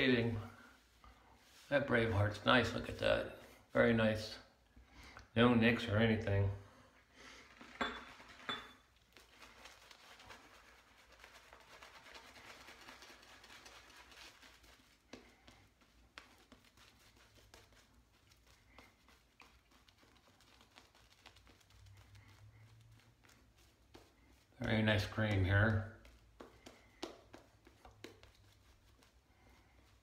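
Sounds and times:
shaving brush swishing: 9.0s - 30.0s.

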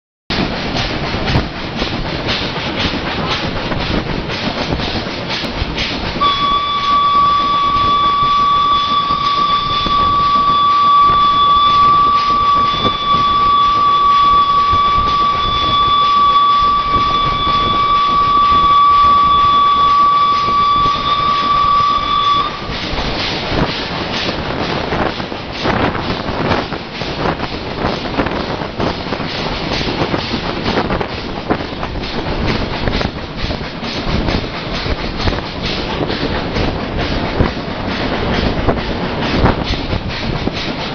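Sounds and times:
steam locomotive rail clatter: 0.3s - 40.9s
steam whistle long blast: 6.2s - 22.8s.

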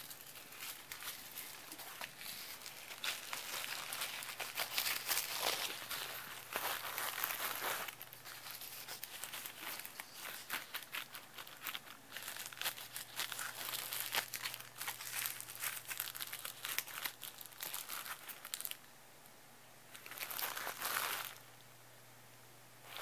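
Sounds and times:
cellophane crinkling: 0.0s - 18.9s, 19.9s - 21.5s.

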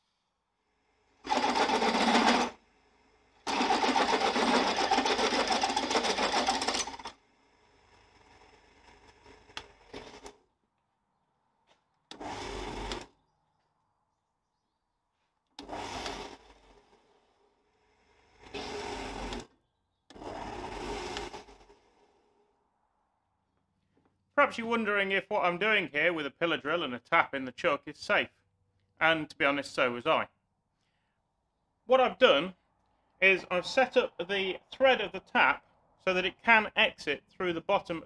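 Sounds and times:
pillar drill running: 1.0s - 10.4s, 12.1s - 13.2s, 15.6s - 22.4s.

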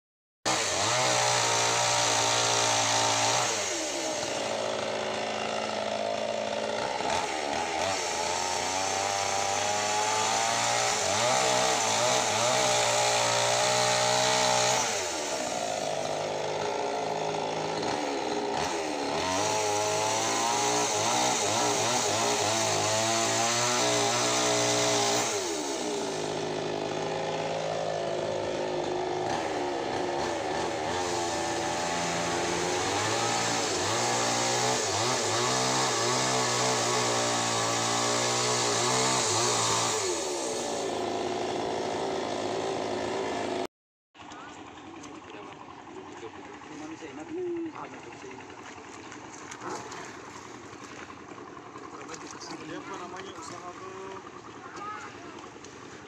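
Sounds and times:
chainsaw cutting wood: 0.5s - 56.0s.

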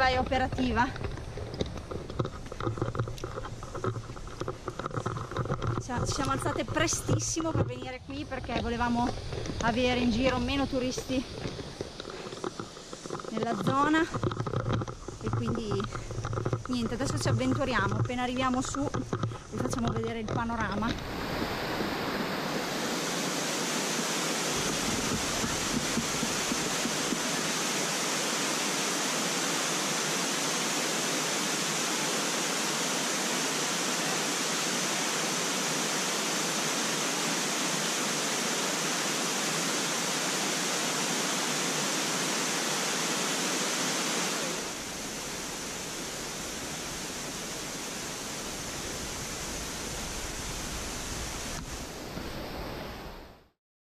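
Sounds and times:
waterfall rushing into pool: 20.9s - 53.6s.

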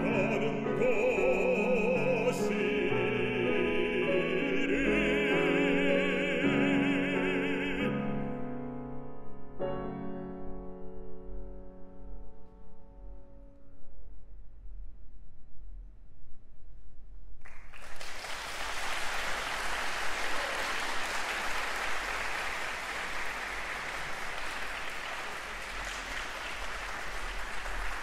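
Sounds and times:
audience applause: 17.4s - 28.0s.

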